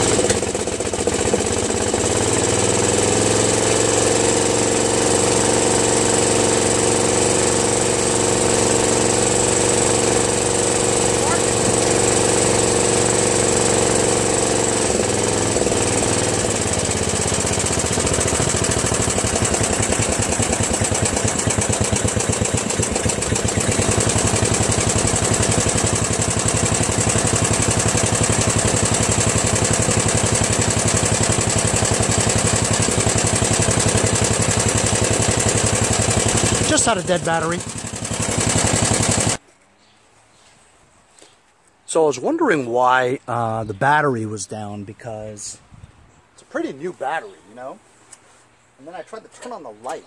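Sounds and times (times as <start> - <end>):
riding mower engine: 0.0 - 39.4.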